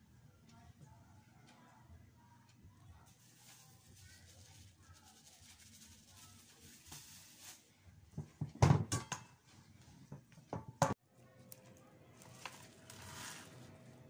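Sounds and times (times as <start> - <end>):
dough thumping on countertop: 8.1 - 9.3.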